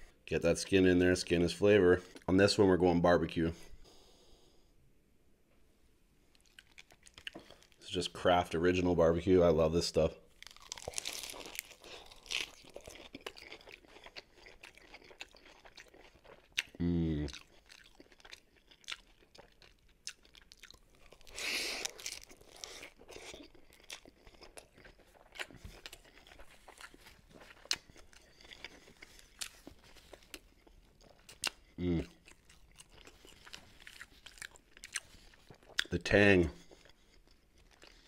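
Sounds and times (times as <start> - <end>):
lettuce wrap crunching and chewing: 6.3 - 7.9, 10.3 - 38.0
person humming mm: 16.8 - 17.3, 31.8 - 32.1.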